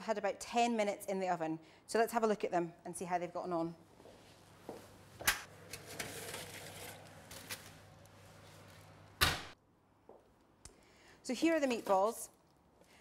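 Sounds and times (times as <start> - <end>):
rustling and scraping of metal and foil: 5.6 - 9.0.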